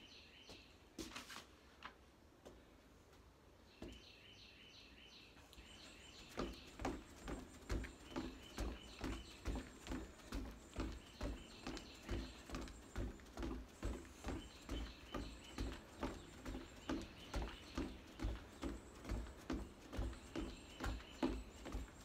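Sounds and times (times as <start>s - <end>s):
footfalls on wooden deck: 5.8s - 22.0s.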